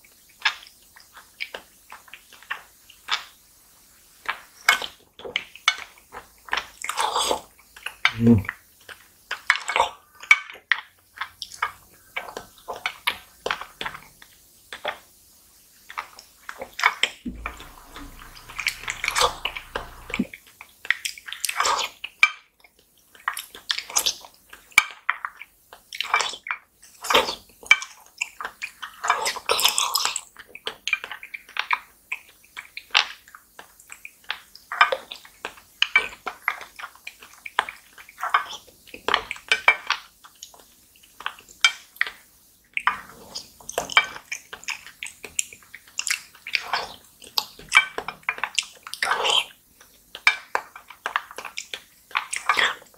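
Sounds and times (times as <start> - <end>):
slurping jelly: 17.3 - 20.3.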